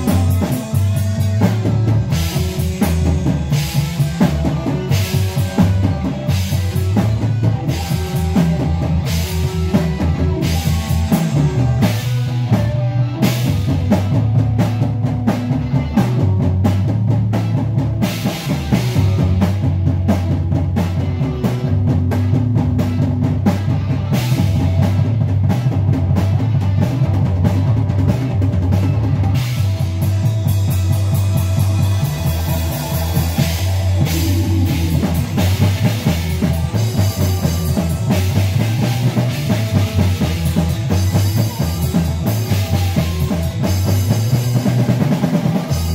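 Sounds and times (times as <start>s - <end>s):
drum kit steady beat: 0.0s - 45.9s
electric bass line: 0.0s - 45.9s
rock band playing: 0.0s - 45.9s.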